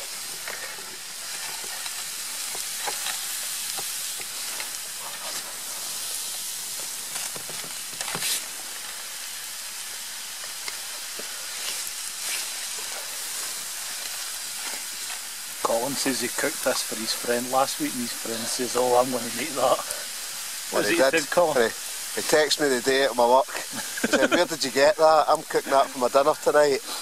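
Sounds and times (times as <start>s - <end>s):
small pops and crackles: 0.0s - 20.1s
meat and vegetables sizzling: 0.0s - 27.0s.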